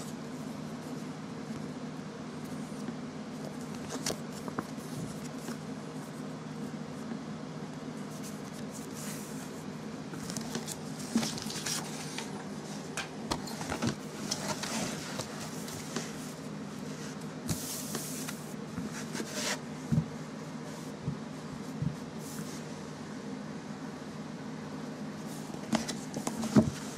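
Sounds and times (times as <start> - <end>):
paper and book cover rustling: 3.4 - 6.1, 8.1 - 19.7, 25.4 - 26.9.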